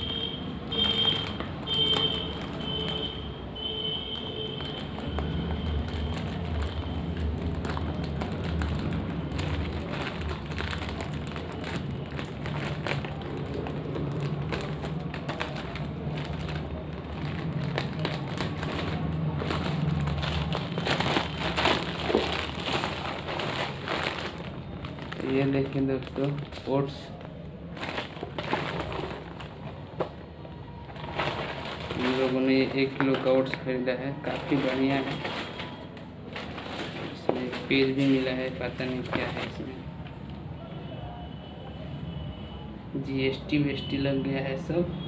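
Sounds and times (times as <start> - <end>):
plastic bag crinkling: 0.0 - 40.1
scissors cutting plastic bag: 4.6 - 30.2, 30.9 - 39.7.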